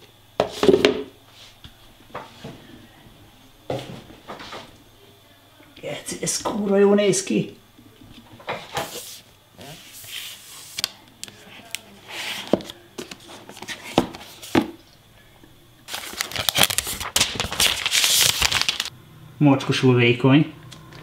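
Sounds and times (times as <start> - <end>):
plastic sleeve crinkling: 15.9 - 18.9.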